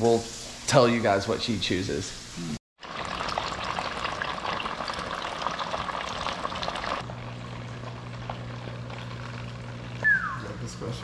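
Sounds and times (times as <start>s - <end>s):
fish frying in hot oil: 2.8s - 10.0s.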